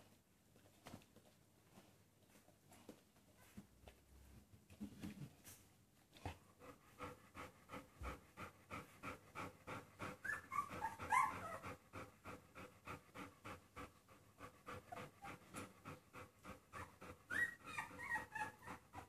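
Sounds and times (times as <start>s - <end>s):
dog panting rapidly: 6.3s - 19.0s.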